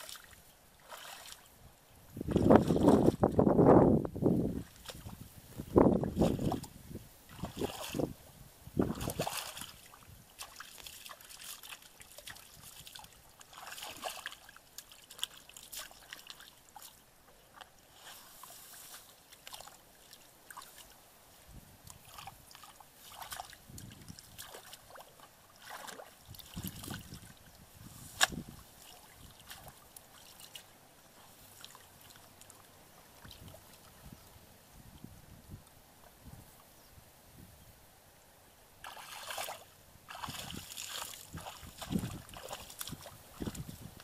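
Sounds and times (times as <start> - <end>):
feet squelching through muddy water: 0.0 - 1.6, 2.2 - 3.4, 6.0 - 8.2, 8.8 - 21.0, 21.9 - 34.0, 38.8 - 44.0
water splashes and trickles: 0.0 - 3.5, 4.4 - 34.1, 38.8 - 44.0.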